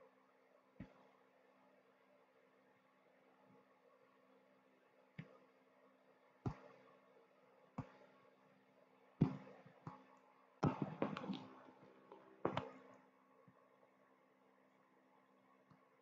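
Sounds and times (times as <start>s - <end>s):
faint steady hum: 0.0s - 16.0s
hands tapping on computer: 10.6s - 11.5s, 12.1s - 12.8s.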